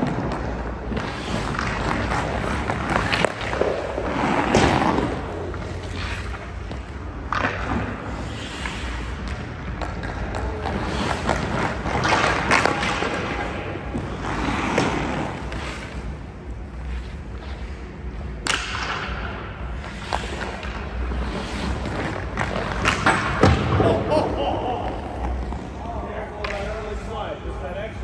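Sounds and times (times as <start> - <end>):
skate blades scraping ice: 0.0 - 27.1.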